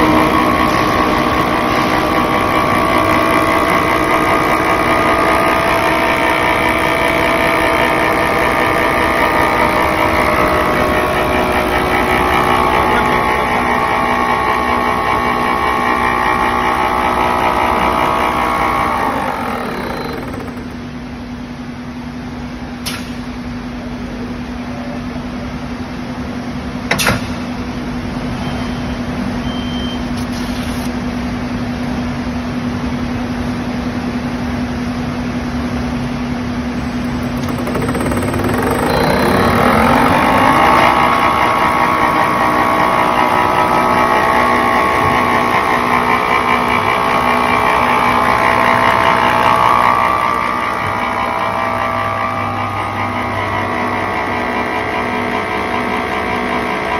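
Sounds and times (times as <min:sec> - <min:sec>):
machine hum and whine: 0:00.0 - 0:56.9
sharp clicks: 0:18.6 - 0:20.9, 0:37.0 - 0:41.4.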